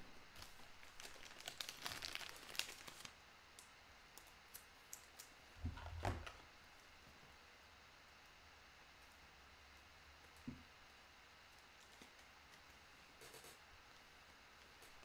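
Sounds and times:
card packaging crinkling: 0:00.4 - 0:03.2.

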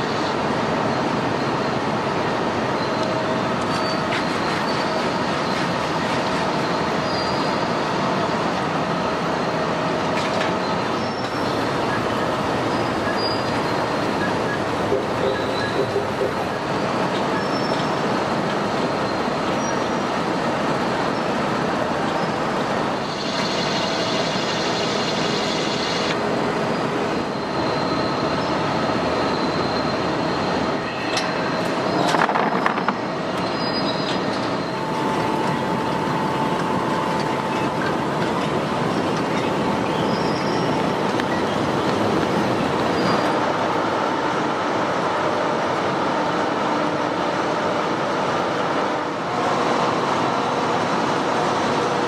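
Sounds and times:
machine clatter: 0:31.1 - 0:36.0.

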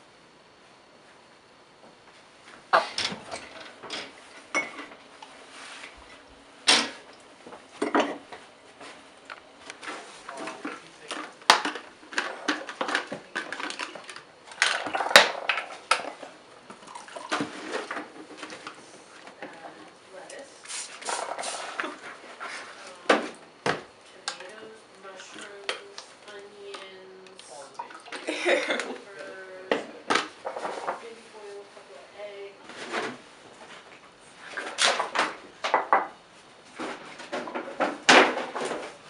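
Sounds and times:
mugs and bottles clinking on tiles: 0:03.0 - 0:04.9, 0:10.3 - 0:16.0.

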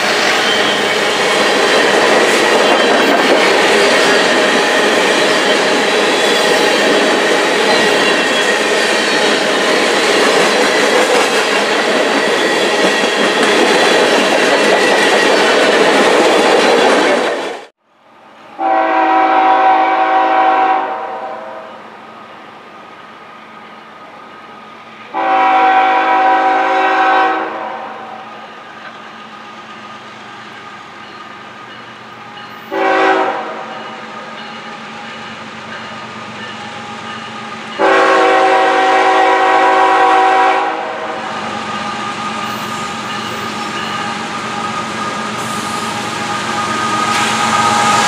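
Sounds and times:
train rumble: 0:00.0 - 0:17.7, 0:28.3 - 0:48.0
locomotive air horn blasts: 0:18.6 - 0:21.8, 0:25.1 - 0:28.4, 0:32.7 - 0:33.8, 0:37.8 - 0:41.4.

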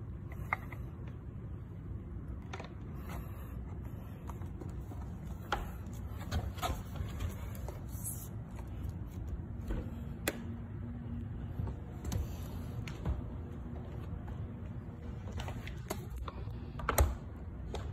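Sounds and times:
low steady rumble: 0:00.0 - 0:17.9.

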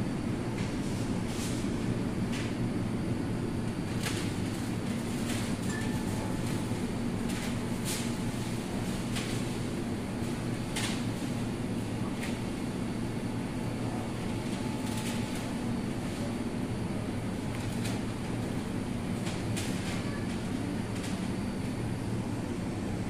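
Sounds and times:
refrigerator and ventilation hum: 0:00.0 - 0:23.0.

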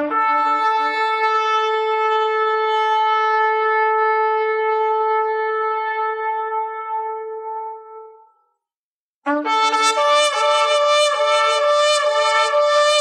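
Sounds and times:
shofar blast: 0:09.3 - 0:13.0.

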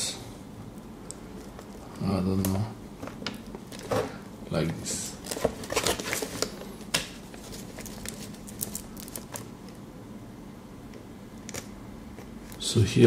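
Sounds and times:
cables rustling: 0:05.0 - 0:09.8.

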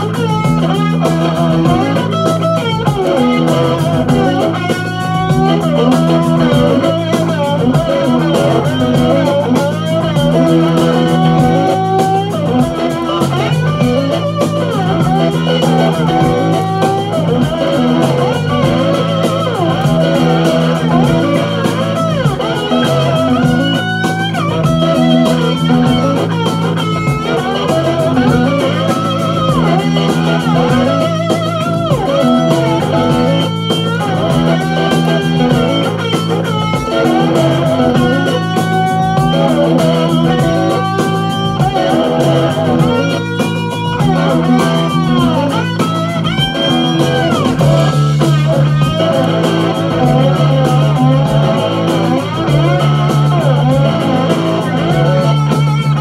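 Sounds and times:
electric guitar lead: 0:00.0 - 0:56.0
repeating bass line: 0:00.0 - 0:56.0.

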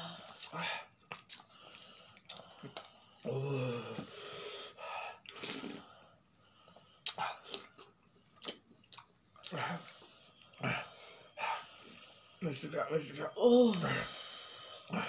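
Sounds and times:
man groaning: 0:03.3 - 0:04.1.

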